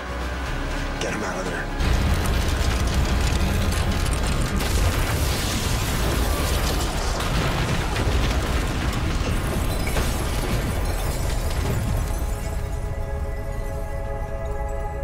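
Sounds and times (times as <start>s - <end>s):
film score music: 0.0s - 15.0s
energy blast: 1.8s - 12.7s.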